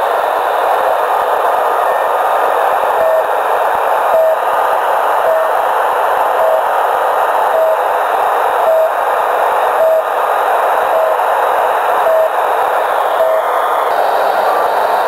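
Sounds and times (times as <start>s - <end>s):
radio static hiss: 0.0s - 15.0s
short radio beeps: 12.1s - 14.8s.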